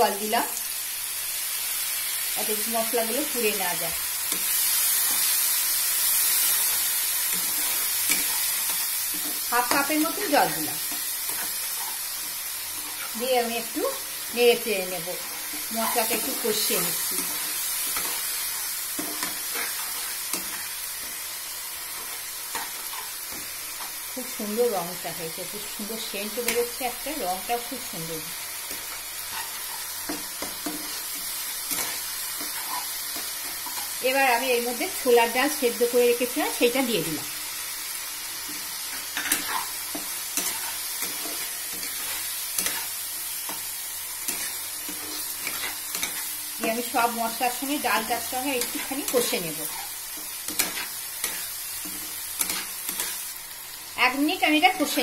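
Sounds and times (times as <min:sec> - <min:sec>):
masala sizzling: 0:00.0 - 0:55.0
metal spatula scraping a pan: 0:28.7 - 0:34.0, 0:38.4 - 0:42.9.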